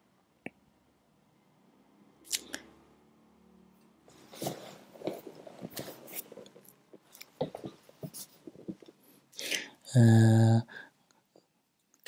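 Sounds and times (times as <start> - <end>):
hand rubbing near microphone: 4.1 - 6.6.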